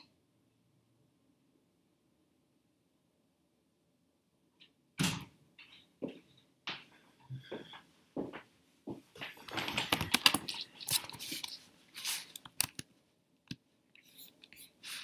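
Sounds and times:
laptop keys and trackpad clicking: 9.8 - 11.6, 12.2 - 12.9.

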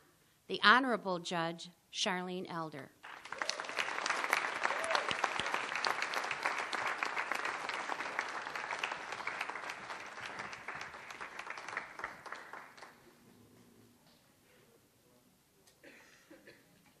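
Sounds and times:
audience applauding: 3.0 - 13.1.

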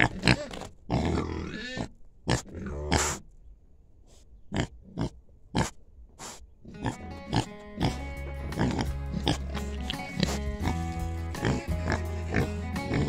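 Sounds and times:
pigs snuffling: 4.0 - 13.0
background music: 6.7 - 13.0.

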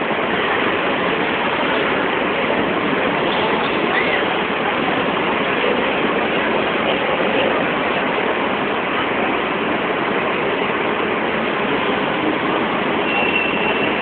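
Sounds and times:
crowd din in station hall: 0.0 - 14.0.

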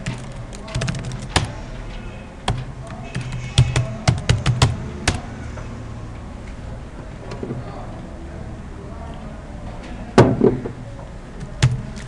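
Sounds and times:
computer keyboard typing: 0.0 - 1.6, 2.5 - 5.3, 11.5 - 12.0.

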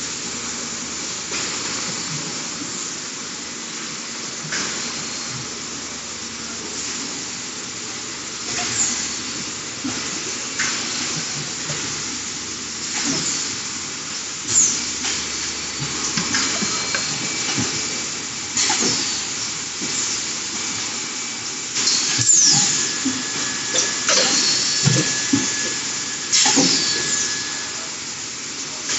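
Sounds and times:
hissing machinery din: 8.4 - 28.9.

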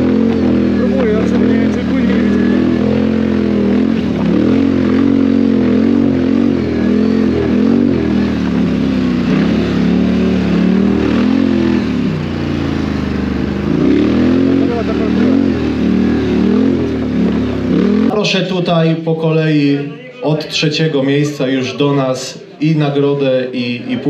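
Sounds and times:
quad bike engine revving: 0.0 - 18.4.

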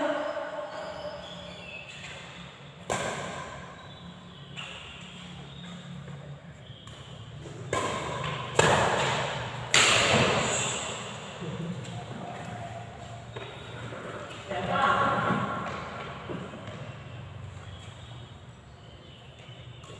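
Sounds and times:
rackets striking shuttlecock: 1.9 - 5.9, 6.8 - 14.4.

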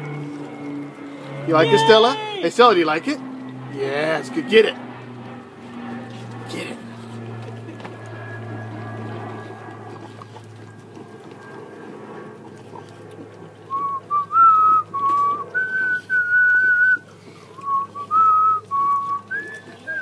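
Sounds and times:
person whistling a tune: 13.7 - 17.0, 17.6 - 20.0.

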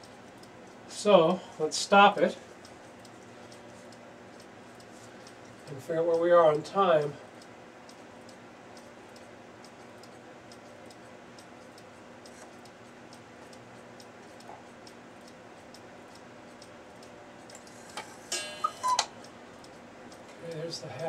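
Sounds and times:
clock mechanism click: 14.4 - 19.8
cuckoo clocks ticking: 14.8 - 21.0
two-note cuckoo call: 18.3 - 19.1.

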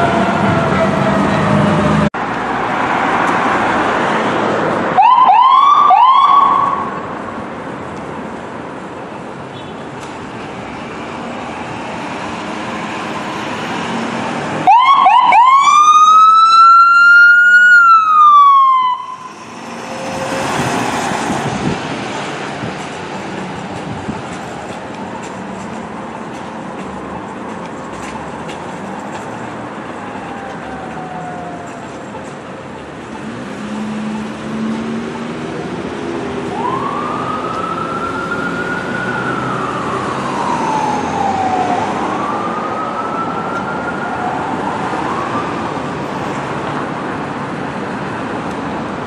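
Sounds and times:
ambulance siren wail: 0.0 - 2.1, 4.9 - 7.1, 12.6 - 21.8, 29.9 - 32.1, 35.6 - 46.4
engine and traffic noise: 0.0 - 49.0
siren whoops: 5.0 - 7.0, 14.6 - 20.6, 36.4 - 45.8.

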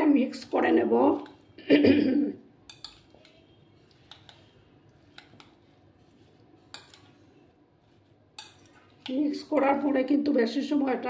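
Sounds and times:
metal cutlery clinking on bowl: 2.7 - 5.6, 6.7 - 7.1, 8.4 - 9.2.

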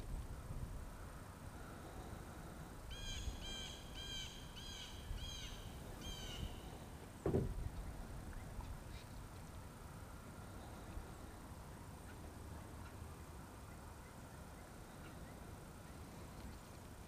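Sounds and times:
dull thump: 7.2 - 7.7.

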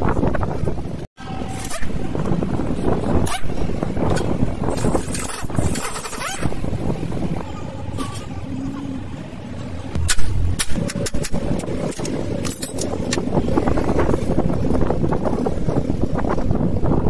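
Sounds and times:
hand tools clattering on metal: 11.9 - 12.9.

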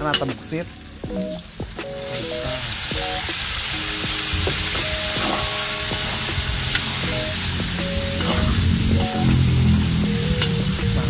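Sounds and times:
meat sizzling in hot oil: 0.7 - 11.0.

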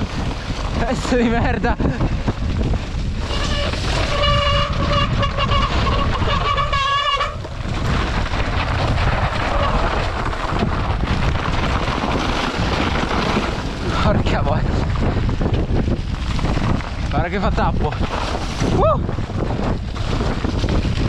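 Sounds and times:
bike tyres rumbling on trail: 0.0 - 21.0
wind buffeting microphone: 0.0 - 21.0
high steady squeal: 3.3 - 7.4.

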